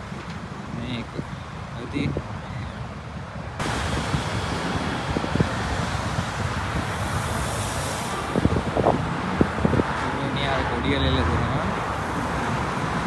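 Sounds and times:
wind buffeting microphone: 0:00.0 - 0:13.0
cars passing: 0:03.0 - 0:13.0.

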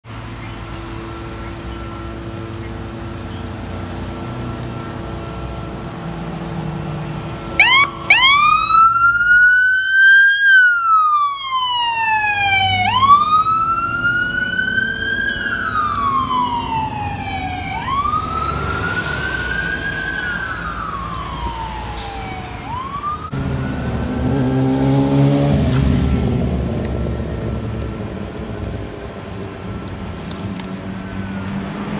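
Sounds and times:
electronic siren wailing: 0:07.5 - 0:24.7.

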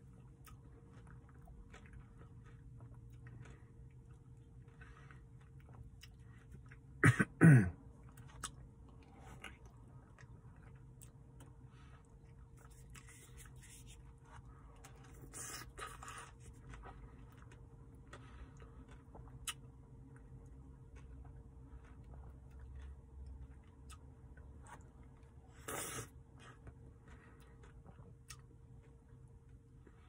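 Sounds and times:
person chewing: 0:00.0 - 0:07.0, 0:07.8 - 0:29.9
cough or grunt: 0:07.0 - 0:07.8.

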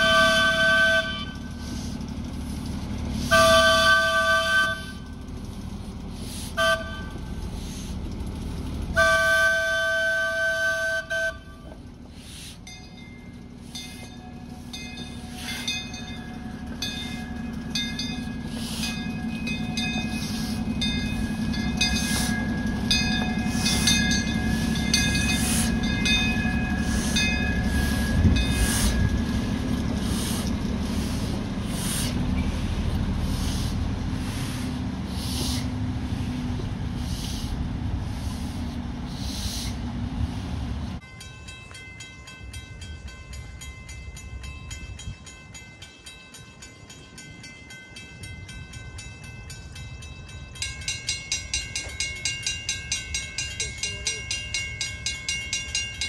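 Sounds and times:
steam locomotive whistle: 0:00.0 - 0:01.6, 0:03.2 - 0:05.0, 0:06.5 - 0:07.2, 0:08.9 - 0:11.8
running rumble: 0:00.0 - 0:41.0
steam locomotive exhaust chuffs: 0:00.0 - 0:56.0.

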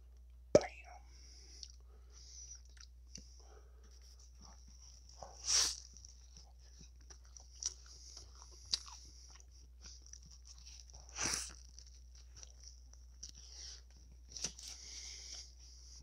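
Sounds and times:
soft chewing: 0:01.0 - 0:16.0
bites into bread: 0:09.9 - 0:14.8.

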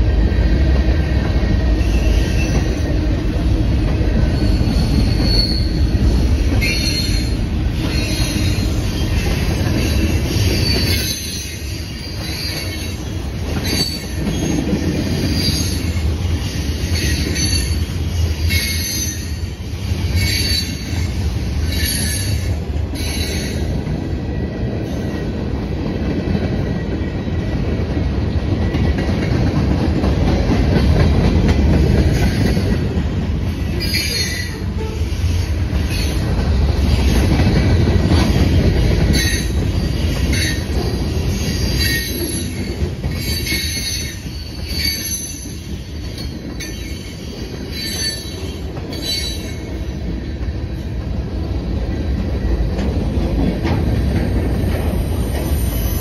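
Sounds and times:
freight train rolling past: 0:00.0 - 0:56.0
wheels squealing on rail: 0:01.5 - 0:03.4, 0:04.0 - 0:25.4, 0:28.6 - 0:52.8, 0:53.4 - 0:56.0.

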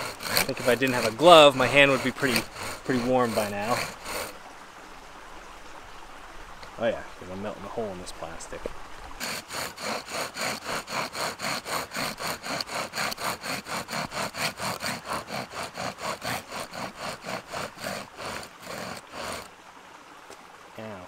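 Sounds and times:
bow drill spindle rasping: 0:00.0 - 0:04.4, 0:09.2 - 0:19.5.

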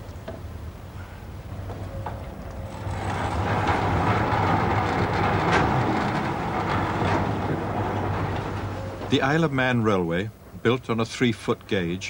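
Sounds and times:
steam train rushing: 0:01.3 - 0:09.8.

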